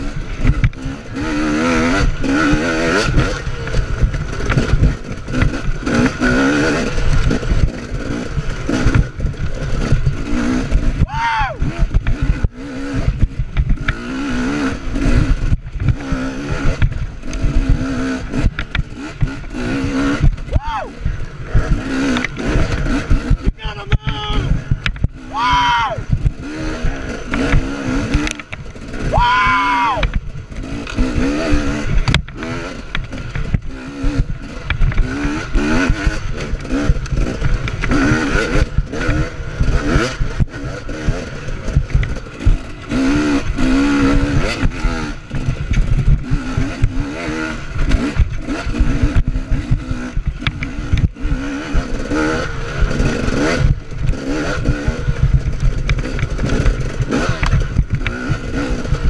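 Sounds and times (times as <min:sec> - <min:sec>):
dirt bike engine revving: 0:00.0 - 0:59.0
bike knocking and clattering: 0:02.2 - 0:11.0, 0:11.7 - 0:14.1, 0:21.4 - 0:25.2, 0:30.0 - 0:59.0.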